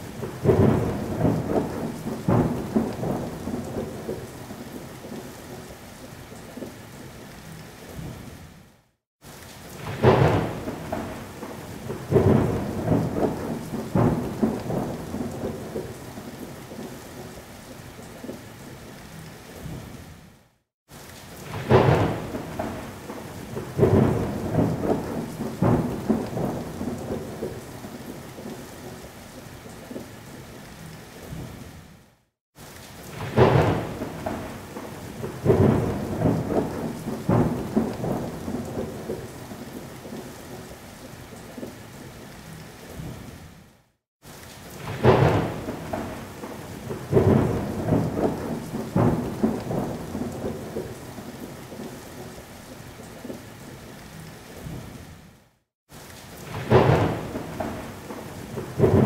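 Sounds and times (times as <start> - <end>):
steady rain: 0.0 - 59.0
thunder claps rumbling: 0.1 - 4.6, 9.8 - 16.9, 21.4 - 29.0, 33.1 - 40.7, 44.8 - 52.3, 56.4 - 59.0.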